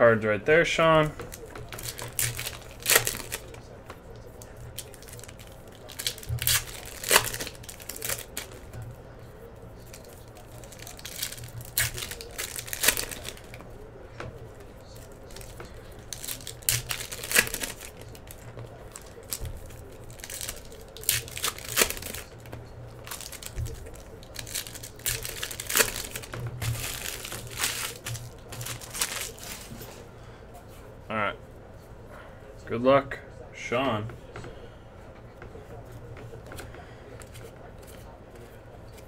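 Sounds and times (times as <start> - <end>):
wrappers crinkling and tearing: 1.0 - 9.0, 9.8 - 30.0
cards being handled: 1.0 - 30.1.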